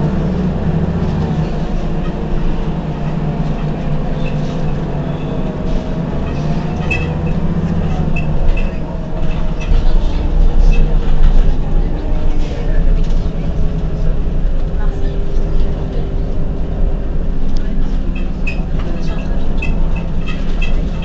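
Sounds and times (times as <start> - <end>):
bus engine hum with whine: 0.0 - 21.0.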